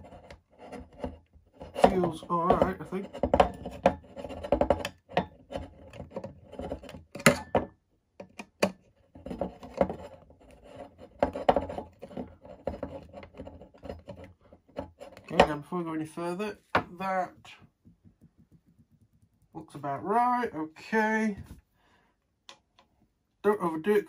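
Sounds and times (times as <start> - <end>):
plastic rubbing and scraping on metal: 0.0 - 7.4, 8.2 - 21.7
small clicks and knocks: 0.0 - 15.6.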